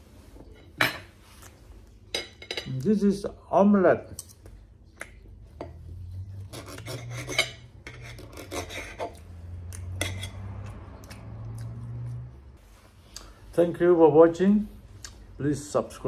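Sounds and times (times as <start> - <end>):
knife scraping on ceramic plate: 6.4 - 9.2, 10.0 - 10.4.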